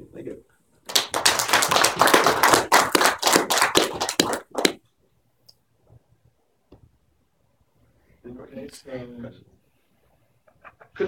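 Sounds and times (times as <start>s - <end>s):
audience applauding: 0.9s - 4.8s.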